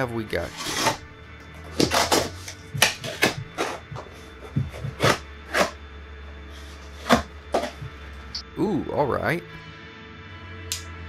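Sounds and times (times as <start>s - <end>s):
blade slicing packing tape: 0.5s - 1.0s, 1.8s - 3.8s, 4.8s - 5.8s
cardboard being handled: 1.7s - 5.8s, 6.5s - 8.0s.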